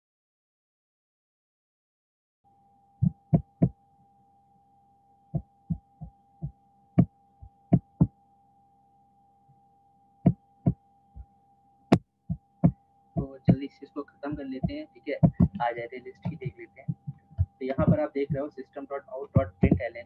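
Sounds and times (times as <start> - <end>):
faint high hum: 2.5 - 20.0
keyboard typing: 12.6 - 18.6, 19.2 - 20.0.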